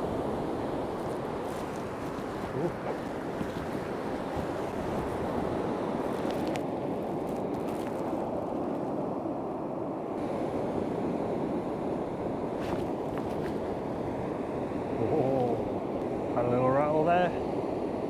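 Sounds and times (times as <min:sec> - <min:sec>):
surf breaking on shore: 0:00.0 - 0:08.9
wind on microphone: 0:00.0 - 0:18.0.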